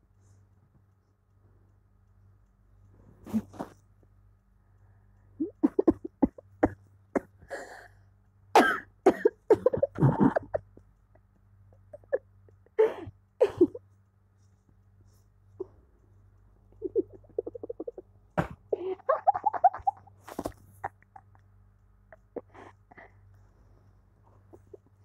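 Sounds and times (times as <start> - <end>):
person coughing: 8.6 - 10.6, 12.8 - 13.8.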